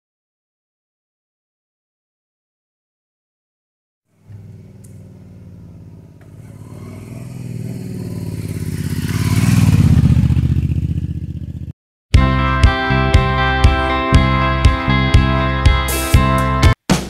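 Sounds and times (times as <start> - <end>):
motorcycle engine passing by: 4.1 - 11.8.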